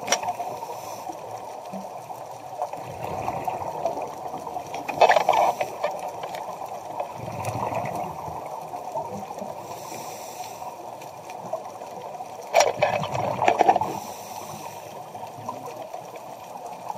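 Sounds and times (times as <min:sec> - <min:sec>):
quiet hiss: 0:00.0 - 0:16.9
bubbly exhalations underwater: 0:02.8 - 0:05.9, 0:07.0 - 0:08.4, 0:12.5 - 0:14.0
diver breathing through regulator: 0:09.6 - 0:10.8, 0:13.8 - 0:15.1.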